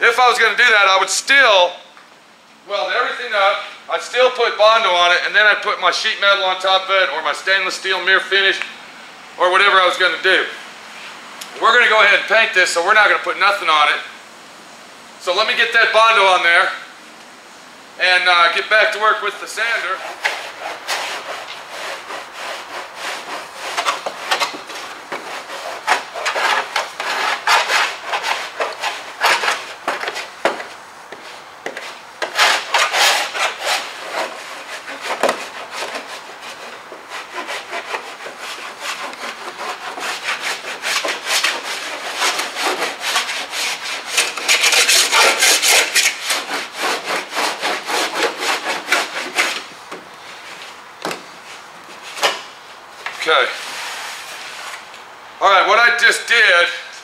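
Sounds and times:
tool scraping body filler: 0:19.6 - 0:51.2.

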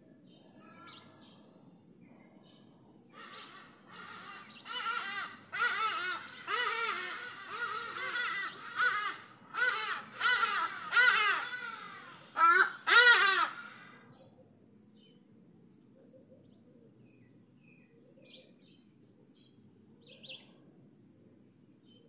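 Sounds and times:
large bird calling harshly: 0:03.1 - 0:14.0.

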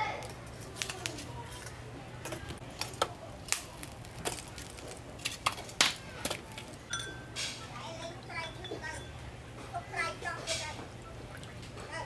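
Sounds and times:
charcoal clinking into a stove: 0:02.2 - 0:07.7.

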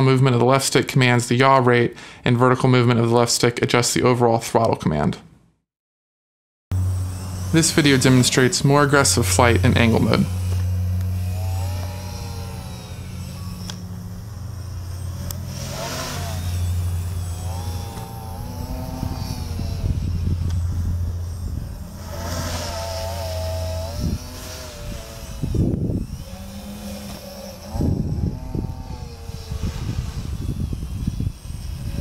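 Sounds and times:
loud low rumbles: 0:06.7 - 0:31.2
quadcopter propellers buzzing: 0:06.7 - 0:32.0.

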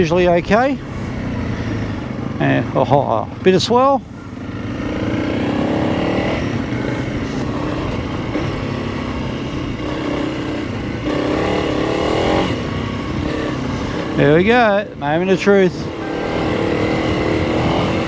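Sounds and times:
motorcycle engine revving: 0:00.0 - 0:18.0
wind and road noise: 0:00.0 - 0:18.0.

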